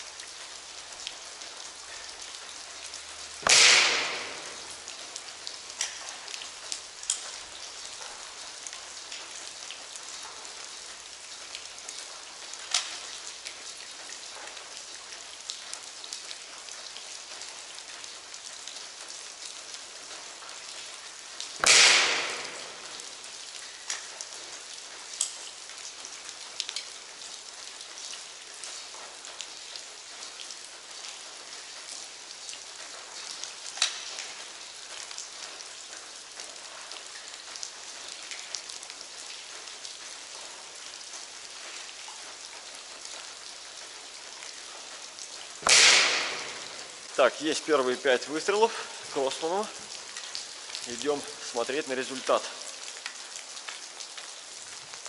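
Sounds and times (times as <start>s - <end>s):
steady hiss: 0.0s - 11.1s, 20.1s - 25.5s, 44.7s - 52.8s
air rifle shots: 3.4s - 4.6s, 21.6s - 22.8s, 45.6s - 46.6s
light ticks: 5.8s - 9.4s, 25.2s - 25.5s, 26.6s - 27.0s.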